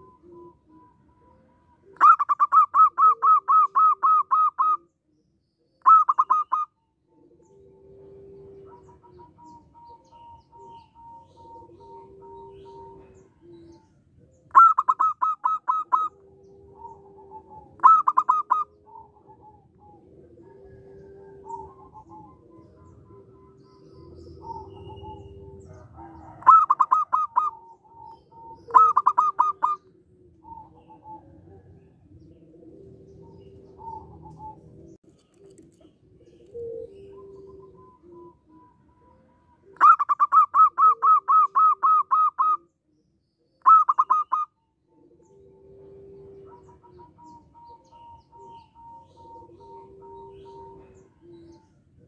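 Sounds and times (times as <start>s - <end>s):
dove rapid cooing: 0.0s - 4.9s, 5.8s - 42.7s, 43.6s - 52.0s
low drawn-out dove notes: 7.1s - 14.2s.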